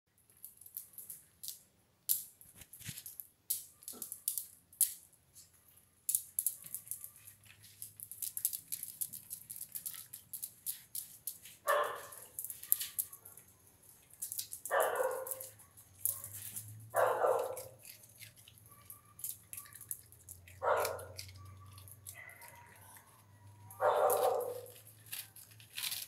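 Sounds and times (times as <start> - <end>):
sharp clicks and crackles: 0.1 - 26.0
dog barking: 11.7 - 13.4, 14.7 - 18.0, 18.6 - 20.0, 20.6 - 24.8.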